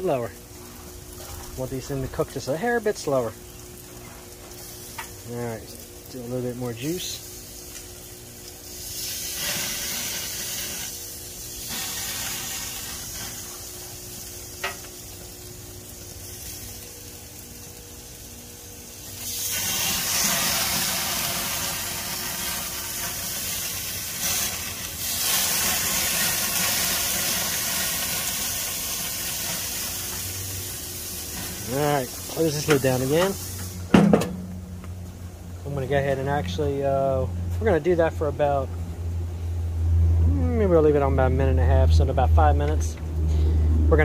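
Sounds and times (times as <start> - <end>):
steaks sizzling on a grill: 0.0 - 33.9.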